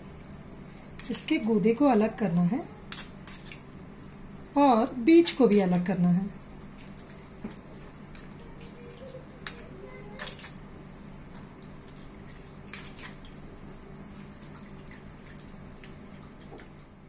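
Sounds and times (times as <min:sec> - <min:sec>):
steady low hum: 0:00.0 - 0:17.0
spoon scraping pulp through sieve: 0:02.9 - 0:03.6, 0:12.2 - 0:13.2
wet squelching pulp: 0:05.1 - 0:16.7.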